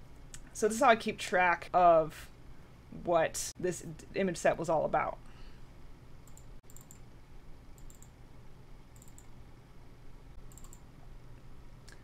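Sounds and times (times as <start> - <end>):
steady low hum: 0.0 - 12.0
computer mouse clicks: 6.2 - 7.0, 7.8 - 8.1, 8.9 - 9.4, 10.5 - 10.9.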